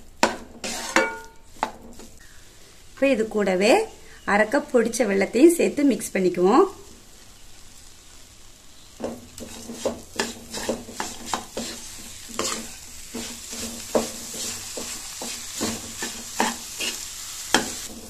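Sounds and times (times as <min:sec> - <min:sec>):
food sizzling: 0:00.0 - 0:18.0
spatula scraping a pan: 0:00.2 - 0:02.1, 0:09.0 - 0:18.0.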